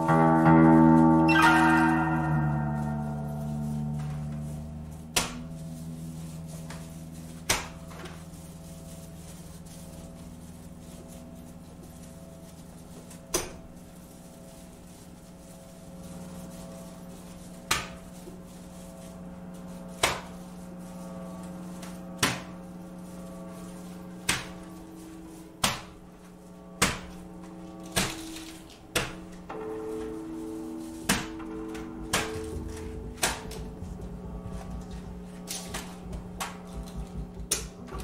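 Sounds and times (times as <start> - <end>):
electric guitar sustained notes: 0.0 - 5.0, 29.5 - 38.0
upright bass sustained notes: 0.0 - 38.0.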